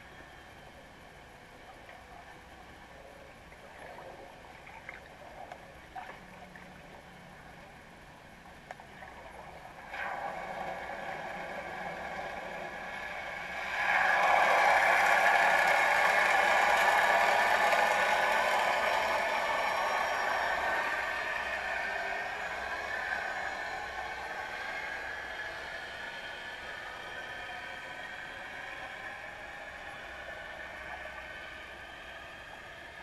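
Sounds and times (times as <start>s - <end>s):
underwater mechanical whir: 0.0s - 33.0s
faint underwater ticks: 1.7s - 13.2s.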